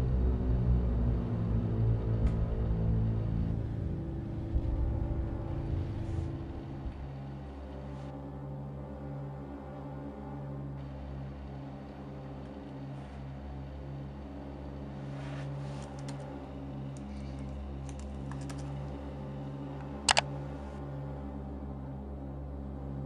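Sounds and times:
low droning hum: 0.0s - 23.0s.

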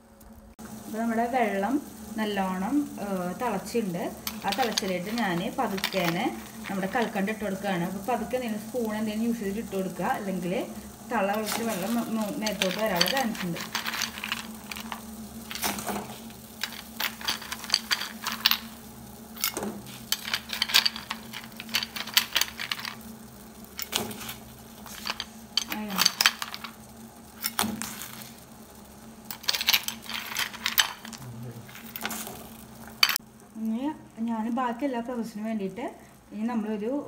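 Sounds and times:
low steady hum: 0.0s - 37.0s.

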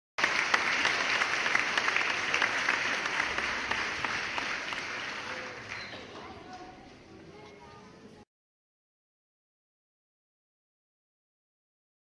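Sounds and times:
audience applauding: 0.2s - 6.3s.

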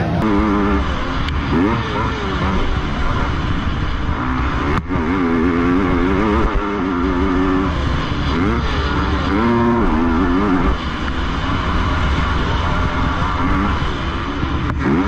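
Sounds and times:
motocross bike engine revving: 0.0s - 15.0s.

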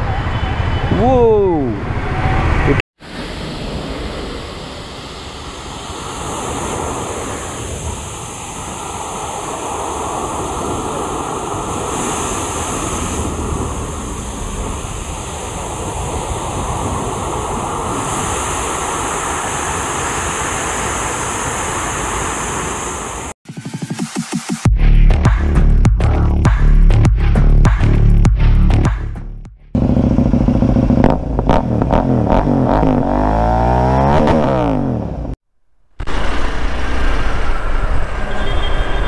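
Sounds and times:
water rushing over weir: 3.0s - 23.4s
wind buffeting microphone: 3.5s - 23.3s.

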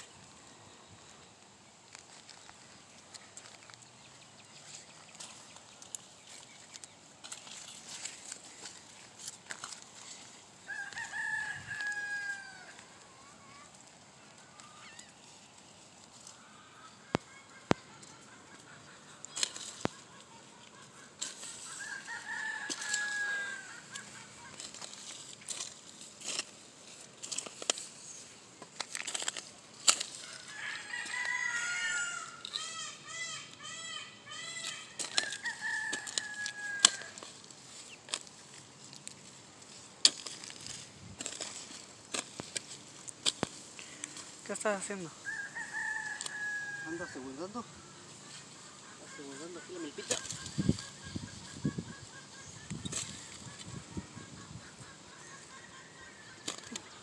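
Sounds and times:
garden ambience: 0.0s - 57.0s
light clicks and crunches: 4.6s - 10.4s, 19.2s - 31.5s, 34.6s - 44.7s, 56.4s - 57.0s
hoe scraping dry soil: 4.6s - 12.3s, 20.8s - 32.7s, 34.4s - 47.3s, 48.1s - 51.7s, 52.4s - 54.0s
rooster crowing: 10.6s - 13.0s, 21.6s - 24.8s, 30.2s - 33.0s, 34.8s - 37.3s, 45.2s - 47.4s.

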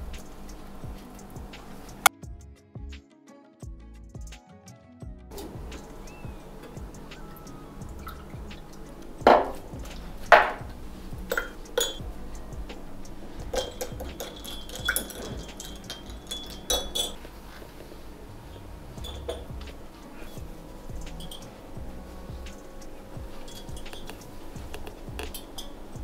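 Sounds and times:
utensils knocking against pots: 5.3s - 10.7s, 11.3s - 12.0s, 12.7s - 17.3s, 19.0s - 20.4s, 22.5s - 26.0s.

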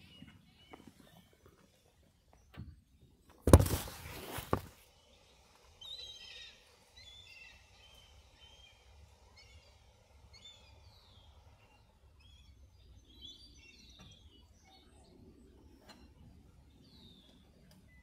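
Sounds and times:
small birds chirping: 0.0s - 18.0s
phone microphone rustling: 3.5s - 4.8s.

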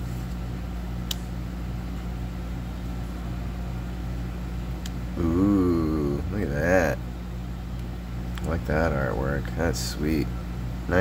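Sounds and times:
low machine hum: 0.0s - 11.0s
wavering voice: 5.2s - 6.5s.

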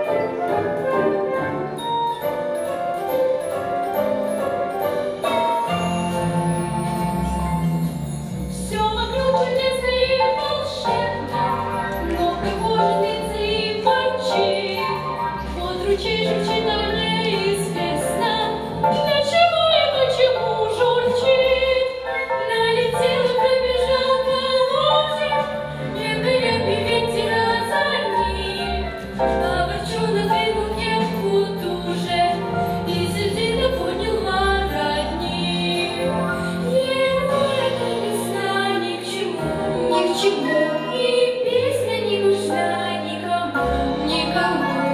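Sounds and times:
instrumental accompaniment with beat: 0.0s - 8.6s
girls singing: 36.6s - 44.9s.

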